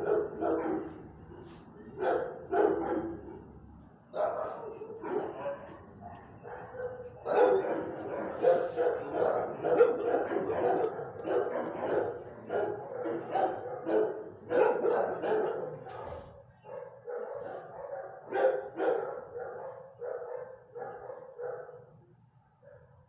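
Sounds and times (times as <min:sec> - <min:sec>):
dog barking: 0:00.0 - 0:01.0, 0:02.0 - 0:03.4, 0:04.2 - 0:21.9, 0:22.6 - 0:23.0.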